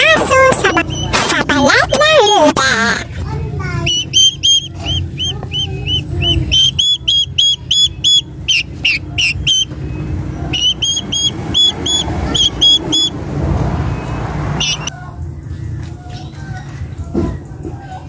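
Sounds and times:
chicks peeping: 0:00.0 - 0:03.2, 0:03.8 - 0:15.0.

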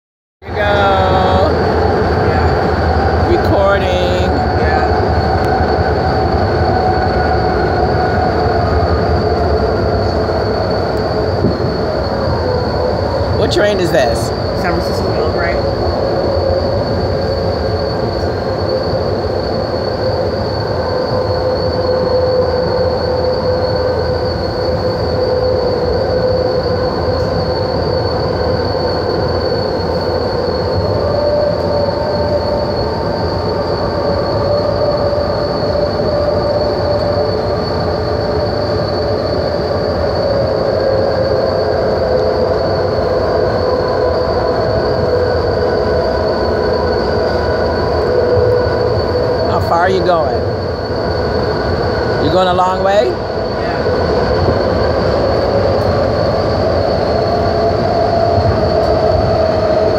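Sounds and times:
high-pitched whine: 0:00.4 - 0:59.9
train running rumble: 0:00.4 - 0:59.9.

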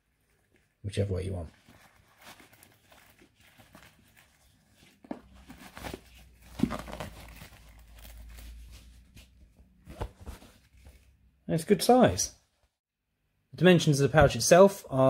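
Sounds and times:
canvas pouch rustling: 0:01.6 - 0:11.0.

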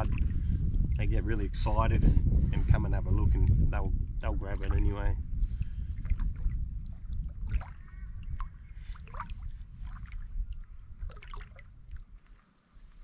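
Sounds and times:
water dripping off paddle: 0:05.4 - 0:12.4.

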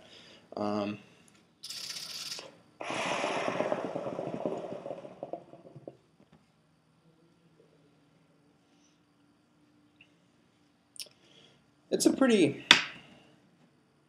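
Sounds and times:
hookah water bubbling: 0:02.8 - 0:06.0.

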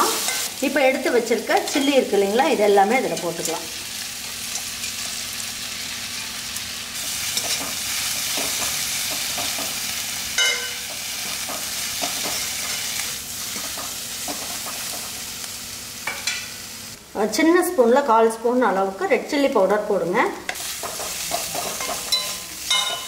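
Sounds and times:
vegetables sizzling in oil: 0:00.0 - 0:23.0
metal clinking on pan: 0:10.4 - 0:10.9, 0:20.8 - 0:23.0
metal spoon stirring and scraping: 0:20.6 - 0:23.0.

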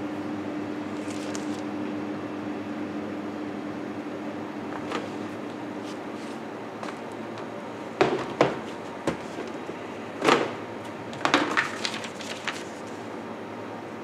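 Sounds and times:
kitchen hum: 0:00.8 - 0:01.9, 0:04.6 - 0:13.2
clicks and crinkles of paper: 0:00.9 - 0:01.7, 0:11.2 - 0:13.1
plastic tubs knocking: 0:08.0 - 0:09.4.

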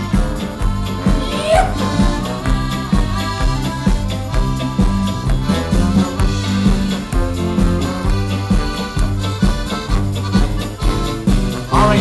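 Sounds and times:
accordion: 0:00.0 - 0:12.0
electric guitar: 0:00.0 - 0:12.0
steady beat: 0:00.1 - 0:08.9.

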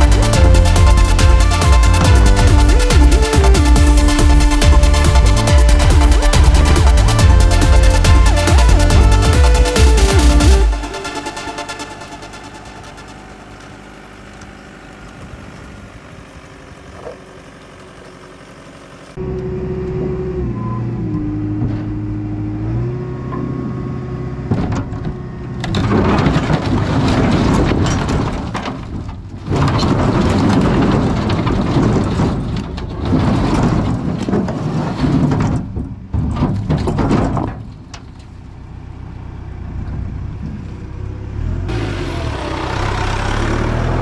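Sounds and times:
heavy machinery diesel engine: 0:00.0 - 0:44.0
rocks clattering and grinding: 0:24.5 - 0:38.4.

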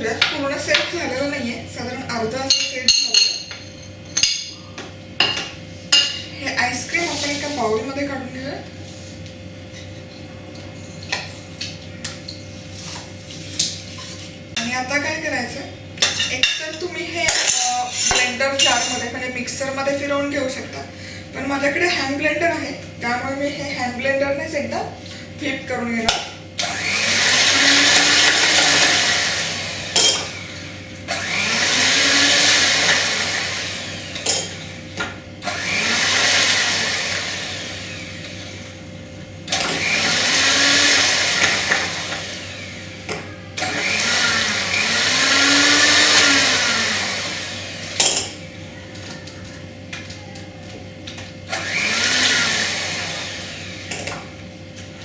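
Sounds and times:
electric hand mixer whirring: 0:26.5 - 0:50.0, 0:50.8 - 0:55.0.

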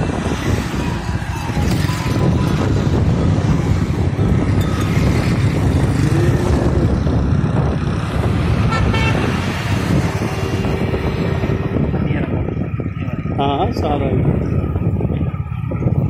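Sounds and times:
vehicle road and engine noise: 0:00.0 - 0:16.0
vehicle horn toot: 0:08.6 - 0:10.6.

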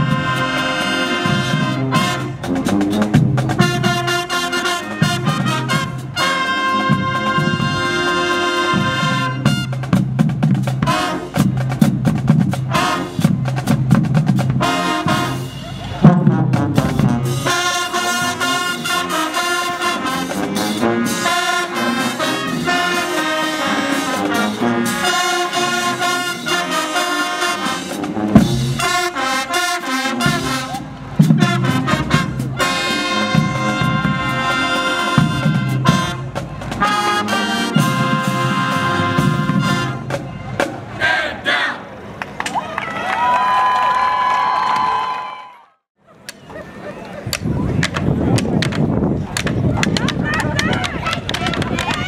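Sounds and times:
marching band drums: 0:00.0 - 0:41.2
marching band brass: 0:00.0 - 0:42.4.

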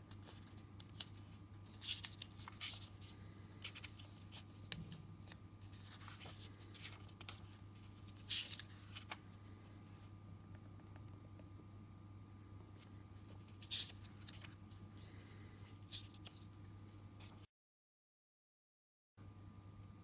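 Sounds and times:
book pages turning: 0:00.0 - 0:10.1, 0:12.8 - 0:16.5
faint steady hum: 0:00.0 - 0:17.5, 0:19.2 - 0:20.0.

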